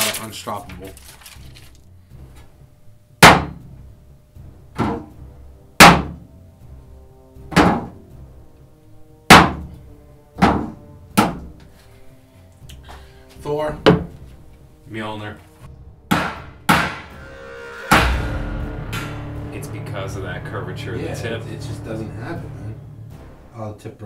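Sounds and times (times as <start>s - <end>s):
knife punching sheet metal: 3.2s - 3.6s, 16.1s - 17.2s.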